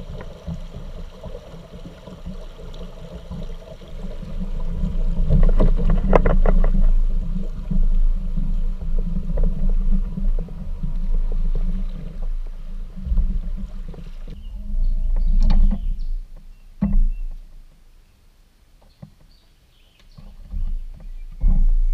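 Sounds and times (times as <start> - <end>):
water rushing and splashing: 0.0 - 14.8.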